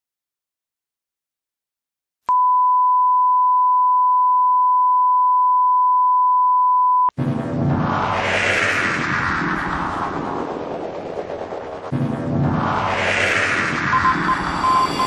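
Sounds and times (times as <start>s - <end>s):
steady test tone: 13.8s - 15.0s.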